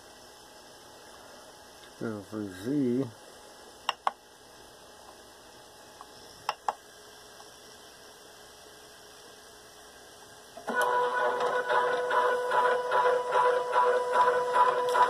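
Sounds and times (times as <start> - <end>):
low electrical hum: 0.0 - 15.0
stepper motors whining: 10.6 - 15.0.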